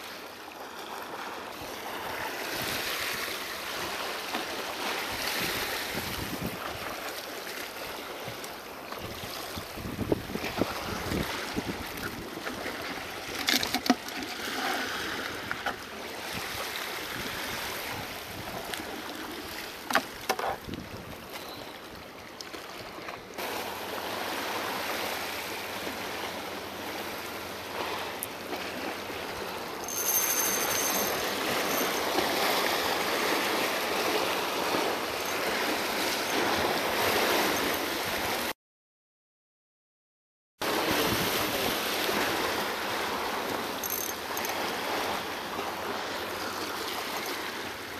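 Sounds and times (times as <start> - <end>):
waves sloshing over rocks: 0.0 - 38.5, 40.6 - 47.9
fishing reel clicks and knocks: 29.8 - 32.1, 43.8 - 44.6.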